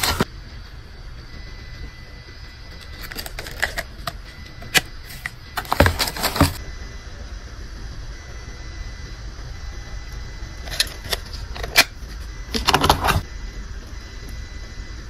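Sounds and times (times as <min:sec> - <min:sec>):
plastic box lids clicking: 0:03.0 - 0:06.6.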